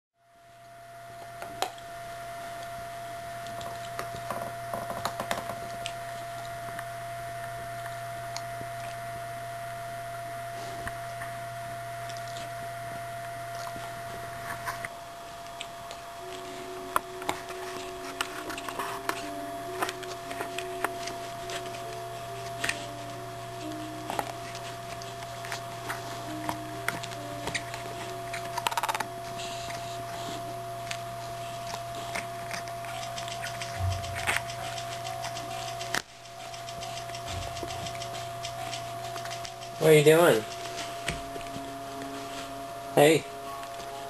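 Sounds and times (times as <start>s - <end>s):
soft background music: 15.0s - 44.0s
dog chewing a tennis ball: 16.9s - 39.8s.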